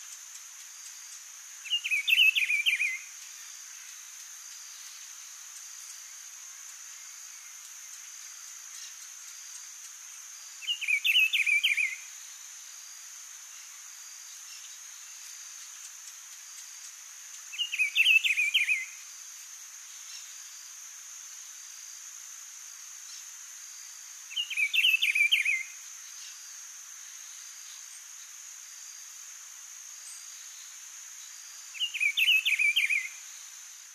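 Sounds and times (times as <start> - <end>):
bird singing warbled phrases: 1.6 - 3.0, 10.6 - 12.0, 17.5 - 19.0, 24.3 - 25.7, 31.8 - 33.2.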